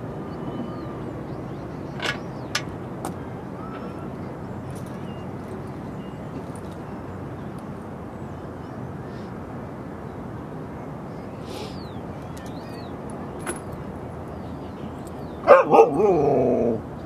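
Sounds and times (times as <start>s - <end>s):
low outdoor background: 0.0s - 17.0s
dog howling call: 15.4s - 16.8s.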